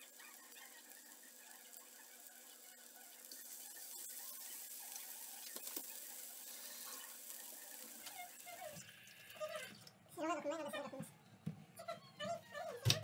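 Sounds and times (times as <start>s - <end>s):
meat sizzling in oil: 0.0s - 9.2s.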